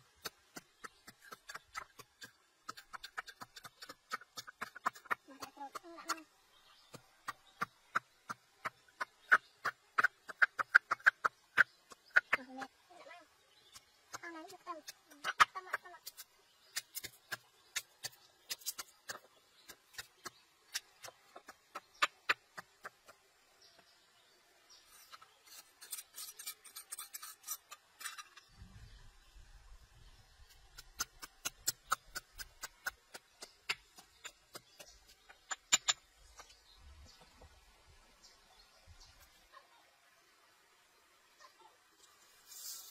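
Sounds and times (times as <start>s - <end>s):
utensil stirring dry food in pot: 25.0s - 28.5s.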